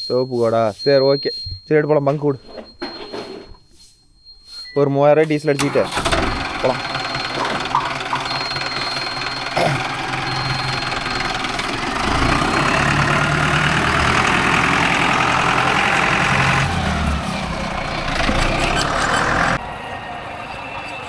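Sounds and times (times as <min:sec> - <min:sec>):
tractor diesel engine running: 0:05.6 - 0:21.0.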